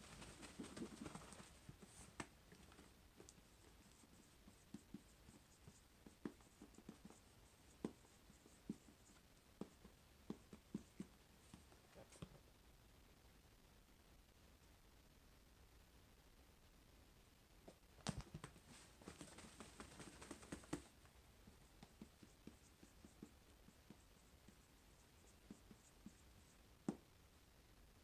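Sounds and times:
marker tip tapping and scratching: 2.2 - 11.1, 21.8 - 24.6, 25.2 - 26.2
marker rubbing on whiteboard: 3.2 - 11.6, 21.6 - 27.0.

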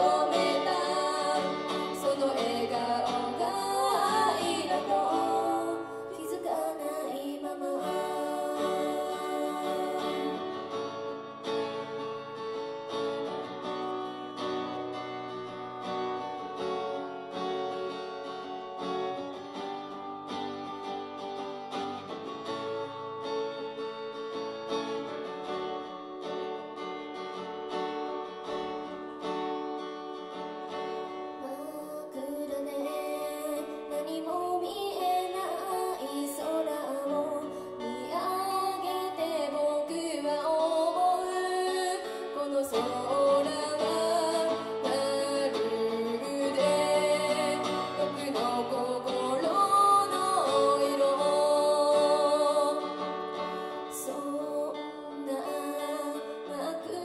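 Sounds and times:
woman singing a ballad: 0.0 - 11.0, 31.4 - 57.0
acoustic guitar strumming: 0.0 - 57.0.

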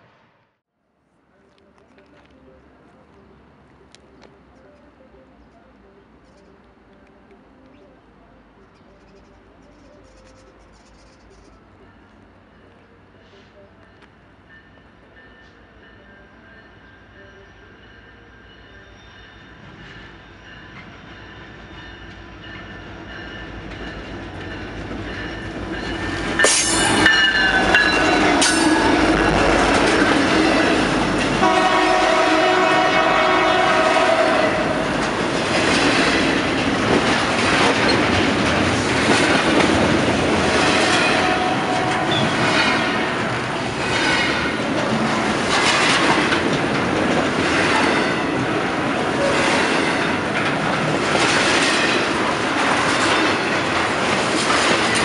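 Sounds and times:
diesel freight train passing: 0.0 - 55.0
wheels clacking over rail joints: 22.1 - 33.7, 34.5 - 55.0
train horn: 26.4 - 35.1, 40.6 - 43.3.

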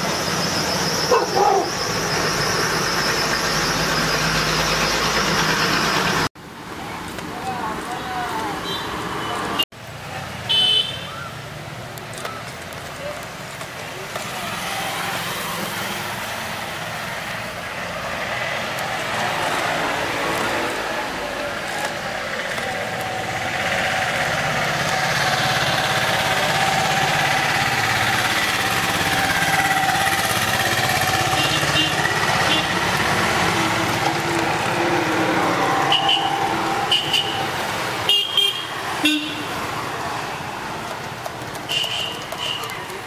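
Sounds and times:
street traffic: 0.0 - 43.0
long held car horn: 31.3 - 32.8, 35.9 - 37.5, 38.1 - 39.5.

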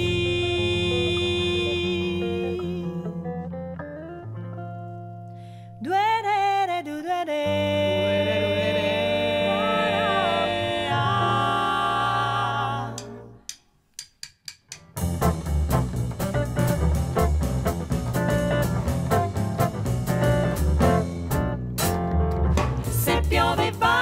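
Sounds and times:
female vocal trio singing: 0.0 - 3.0, 7.3 - 13.5, 22.9 - 24.0
double bass: 0.0 - 5.6, 7.5 - 13.4, 15.0 - 24.0
acoustic guitar: 0.0 - 13.4, 15.2 - 24.0.

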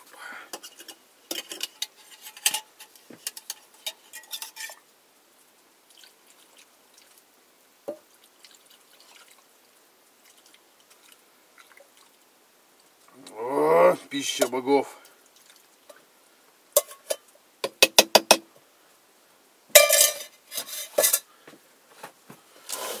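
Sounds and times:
metal spoon clinking on pots: 0.5 - 4.8, 16.8 - 18.4, 19.8 - 21.3
knock: 17.6 - 18.4.

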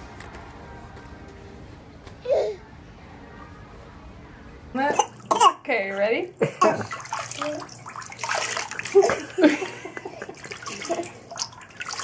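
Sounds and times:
water sloshing: 4.8 - 12.0
water pouring and splashing: 6.0 - 12.0.

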